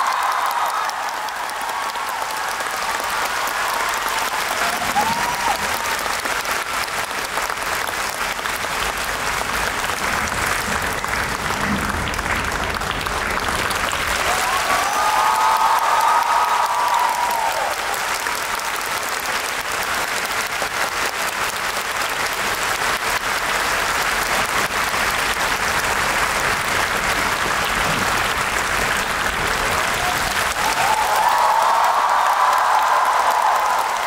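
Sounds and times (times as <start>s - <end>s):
high-pitched cheering: 0.0s - 6.1s, 14.2s - 18.1s, 29.9s - 34.0s
audience applauding: 0.0s - 34.0s.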